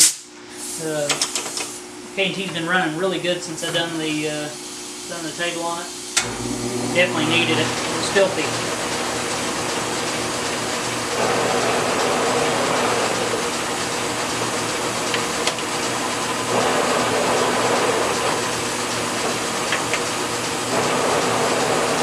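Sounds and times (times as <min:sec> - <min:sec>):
milling machine whirring: 0:06.2 - 0:22.0.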